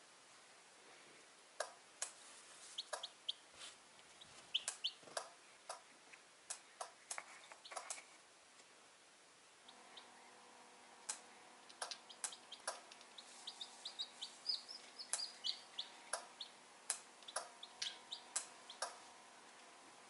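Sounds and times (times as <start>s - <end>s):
chick peeping: 2.7s - 3.4s, 4.2s - 5.8s, 9.7s - 10.4s, 11.1s - 19.1s.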